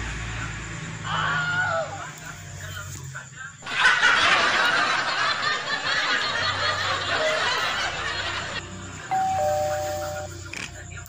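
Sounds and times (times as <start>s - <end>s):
dense noisy sound: 0.0s - 11.0s
two-note ding-dong chime: 9.1s - 10.1s.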